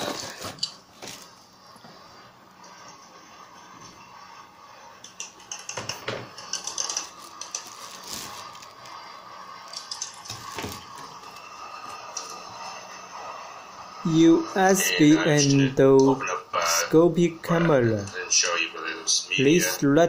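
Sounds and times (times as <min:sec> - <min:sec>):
packaging rustling and crinkling: 0:00.0 - 0:01.4, 0:06.6 - 0:09.0, 0:09.7 - 0:11.4.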